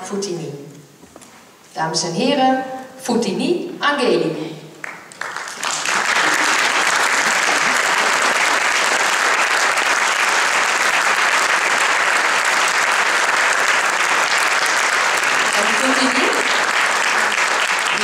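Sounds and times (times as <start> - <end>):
audience applauding: 4.8 - 18.0.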